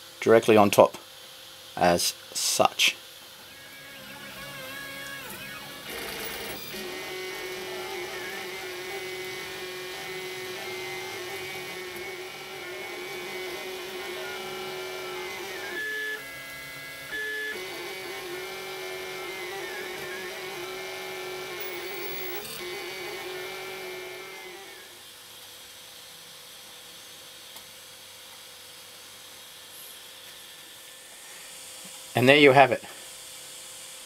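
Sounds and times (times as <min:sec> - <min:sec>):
three d printer stepper motors whining: 0:03.3 - 0:25.0.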